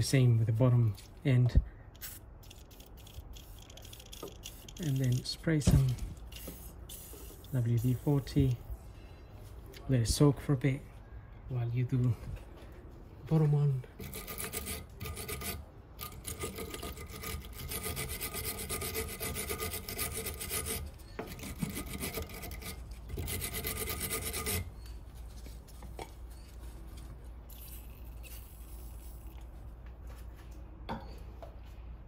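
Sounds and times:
wire brush scrubbing metal: 0:14.0 - 0:24.7.

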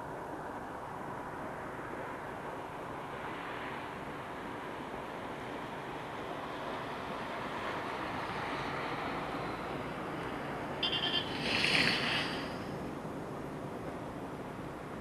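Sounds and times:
distant train rumble: 0:09.2 - 0:15.0
high pulsed squeal: 0:10.8 - 0:12.8.

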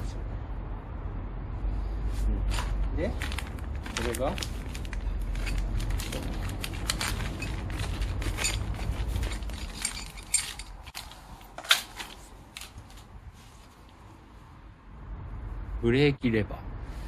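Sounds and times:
plastic bag rustling: 0:02.4 - 0:13.1
metal levers clinking and clacking: 0:06.8 - 0:12.0.

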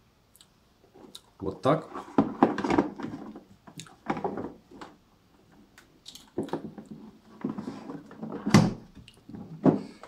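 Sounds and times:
plastic toolbox clicks and knocks: 0:02.0 - 0:05.0, 0:06.3 - 0:10.0.

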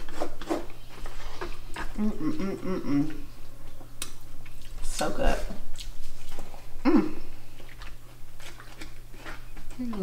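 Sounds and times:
person humming mmm: 0:01.8 - 0:03.4, 0:06.8 - 0:07.3.

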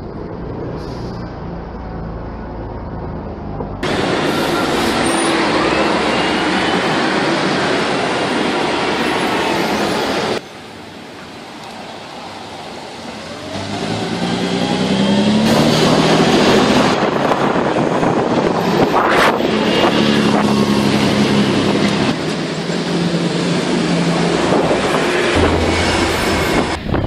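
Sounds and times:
diesel bus engine pulling away: 0:00.0 - 0:08.9, 0:12.2 - 0:27.0
road noise: 0:00.0 - 0:27.0
short sharp high sound: 0:25.4 - 0:27.0.

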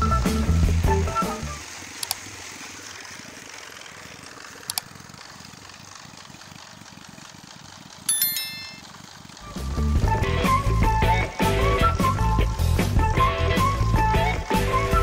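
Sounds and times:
concrete mixer engine running: 0:00.0 - 0:08.1, 0:08.7 - 0:15.0
sharp clicks: 0:04.6 - 0:04.9.

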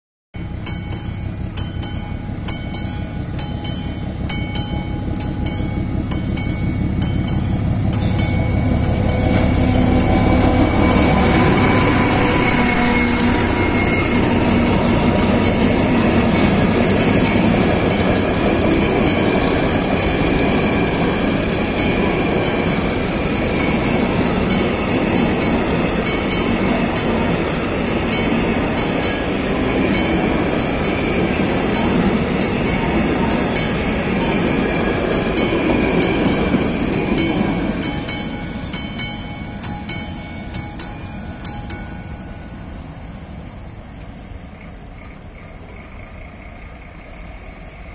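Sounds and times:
high wheel squeal: 0:00.4 - 0:29.8
level-crossing warning bell: 0:00.4 - 0:43.6
diesel locomotive engine: 0:00.4 - 0:47.9
train wheels rumbling: 0:00.4 - 0:47.9.

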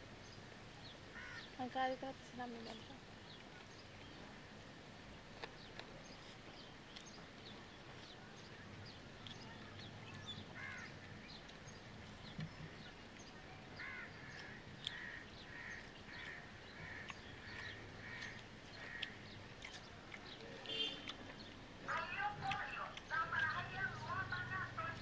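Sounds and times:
crow cawing: 0:01.1 - 0:01.5, 0:10.5 - 0:11.0, 0:13.8 - 0:19.3
faint eating and chewing clicks: 0:02.7 - 0:04.3, 0:05.3 - 0:25.0.

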